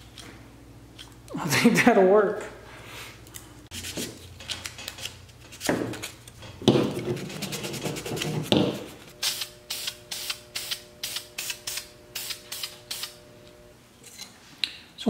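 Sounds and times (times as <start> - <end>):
plastic parts rubbing and knocking: 6.6 - 9.1.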